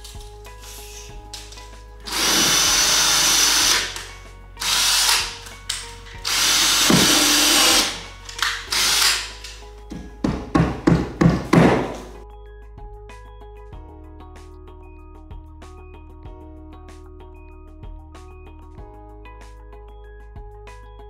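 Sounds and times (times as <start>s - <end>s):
cordless drill driving into wall: 2.1s - 9.6s.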